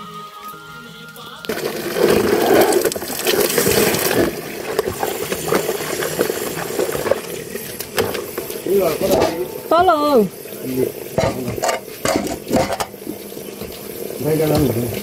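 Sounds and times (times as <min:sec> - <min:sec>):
water splashing into container: 0:01.5 - 0:15.0.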